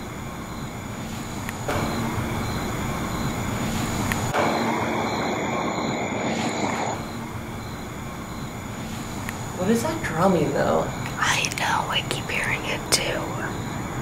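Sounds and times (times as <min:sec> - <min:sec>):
rushing hiss: 0:03.5 - 0:07.5.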